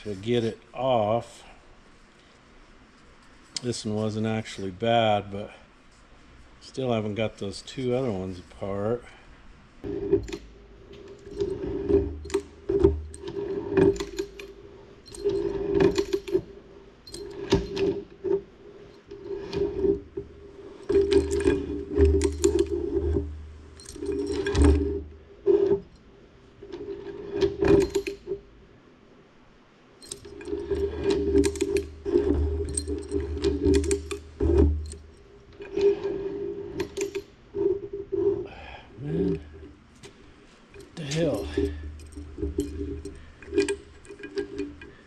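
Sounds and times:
metal rasping and grinding: 0:09.8 - 0:26.0, 0:30.1 - 0:45.0
chain links clinking: 0:09.9 - 0:25.1, 0:26.7 - 0:28.4, 0:30.0 - 0:37.9, 0:39.1 - 0:45.0.

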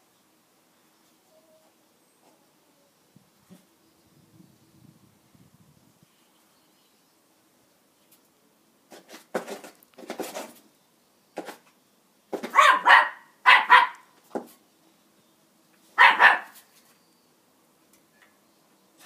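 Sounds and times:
dog barking: 0:12.5 - 0:14.0, 0:16.0 - 0:16.6.

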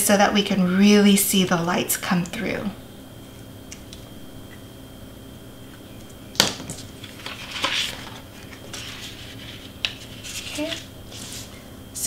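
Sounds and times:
cardstock rustling: 0:06.8 - 0:11.6.

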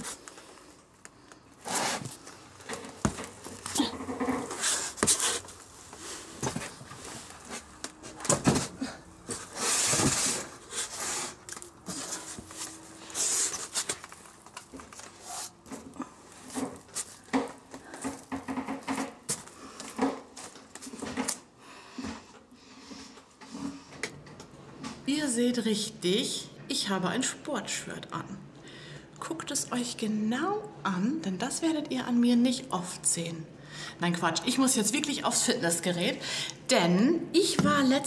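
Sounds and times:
rustling and shuffling: 0:00.0 - 0:21.4.

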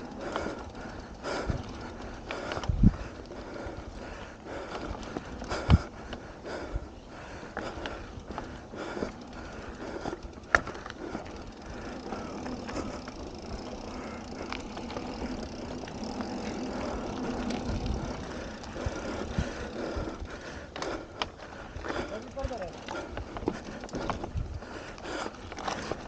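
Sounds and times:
bike clicks and rattles: 0:00.0 - 0:26.0
tyres rolling over dirt: 0:08.2 - 0:26.0.

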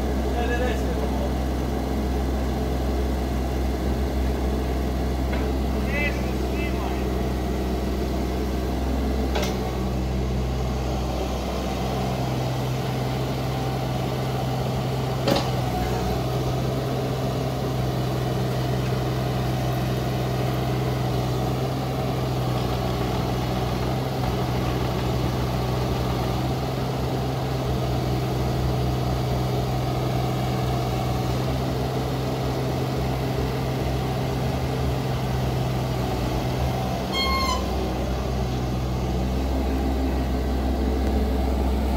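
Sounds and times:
diesel engine running: 0:00.0 - 0:41.9
sharp metal clunks: 0:15.2 - 0:15.6.

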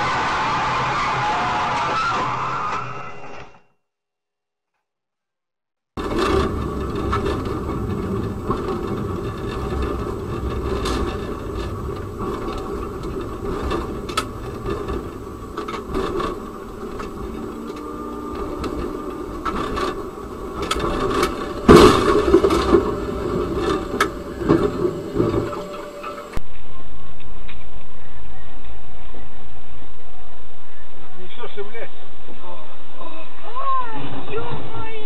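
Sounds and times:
tram rumble: 0:06.0 - 0:26.6
loud collision bang: 0:08.4 - 0:26.8.

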